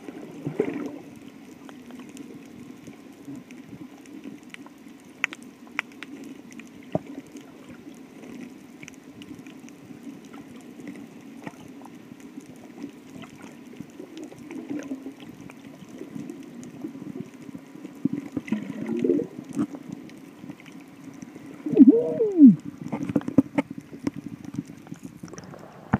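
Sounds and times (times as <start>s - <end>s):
underwater hum of moving water: 0.0s - 25.9s
underwater clicks and taps: 22.8s - 25.4s.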